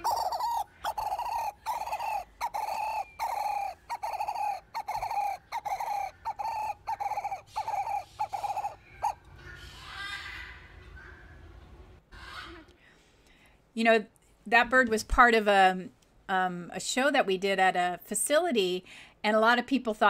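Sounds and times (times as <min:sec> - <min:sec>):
bird giving short repeated calls: 0:00.0 - 0:09.2.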